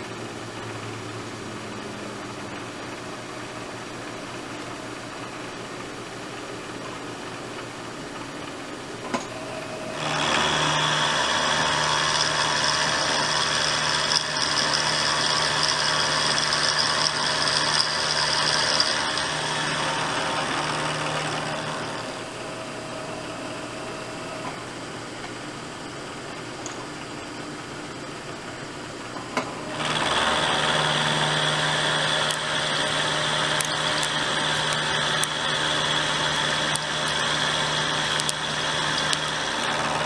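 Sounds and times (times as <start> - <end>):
milling spindle humming: 0.0 - 40.0
end mill cutting metal: 9.0 - 26.2, 28.5 - 40.0.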